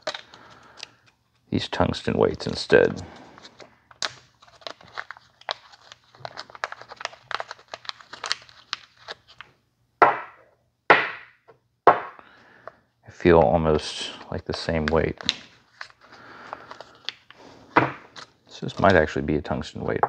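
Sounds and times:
plastic packaging crinkling: 0:03.3 - 0:09.5.

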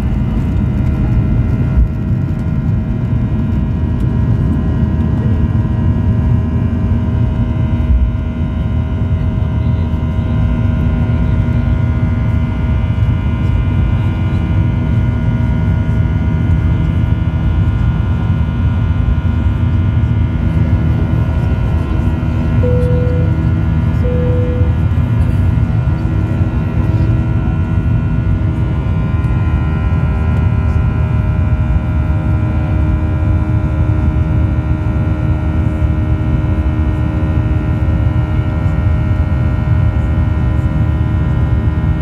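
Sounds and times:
jet engine rumble in cabin: 0:00.0 - 0:42.0
jet engine whining tones: 0:22.6 - 0:25.2.

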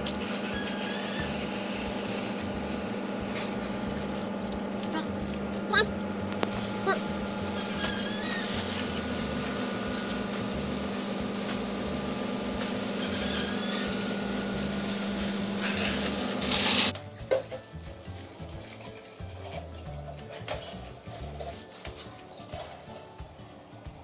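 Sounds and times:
hose spraying water: 0:00.0 - 0:24.0
water running into watering can: 0:00.0 - 0:24.0
low steady hum: 0:01.7 - 0:12.7.

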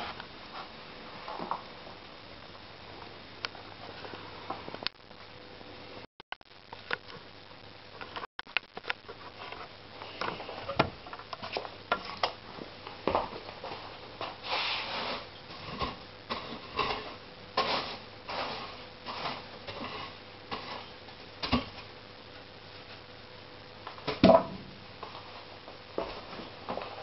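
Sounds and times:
logs knocking and thudding: 0:24.1 - 0:24.6.

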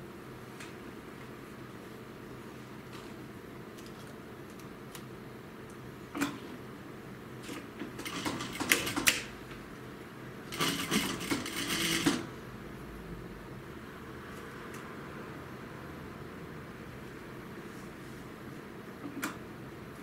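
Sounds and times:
sewing machine stitching: 0:07.5 - 0:09.3, 0:10.5 - 0:12.3.

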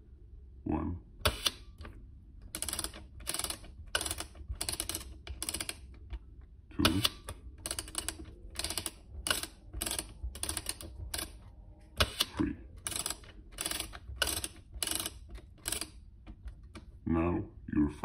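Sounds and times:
camera ratchet clicking: 0:01.3 - 0:01.6, 0:02.5 - 0:06.2, 0:06.8 - 0:11.4, 0:12.0 - 0:16.0.

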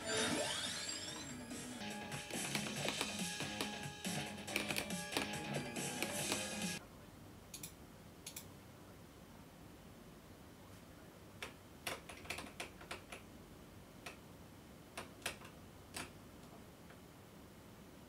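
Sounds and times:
mechanical keyboard key presses: 0:04.5 - 0:05.4, 0:11.4 - 0:13.2.

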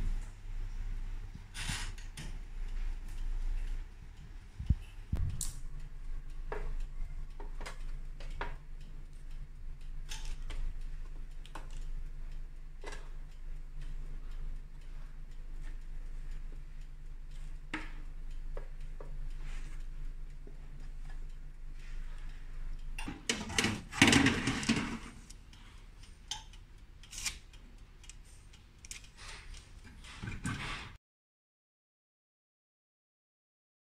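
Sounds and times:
steady low hum: 0:00.0 - 0:30.9
metal tray scraping oven rack: 0:23.1 - 0:25.2.

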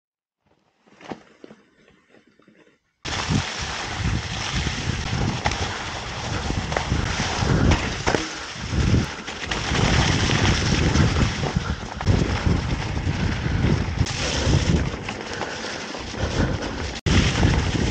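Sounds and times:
bike tyre rumble: 0:00.7 - 0:17.9
wind rushing over microphone: 0:03.1 - 0:15.5, 0:16.1 - 0:17.9
bike rattling over bumps: 0:03.1 - 0:17.9.

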